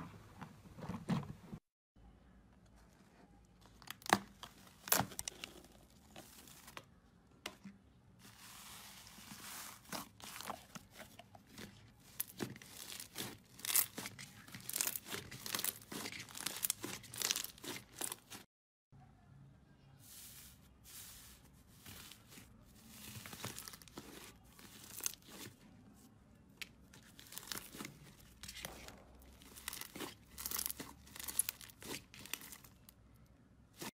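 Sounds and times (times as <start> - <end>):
slime squelching and crackling: 8.4 - 18.5, 21.8 - 25.6, 26.6 - 33.0.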